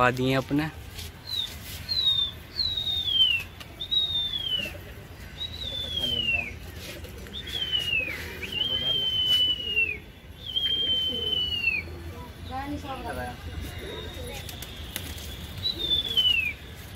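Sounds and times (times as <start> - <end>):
person whistling shrilly: 7.5 - 11.9.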